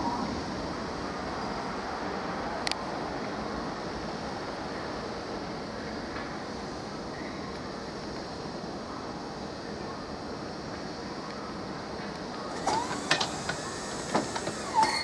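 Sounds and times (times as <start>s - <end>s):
train rumble: 10.6s - 15.0s
train wheels clacking over points: 12.4s - 15.0s
wheels squealing: 12.4s - 15.0s.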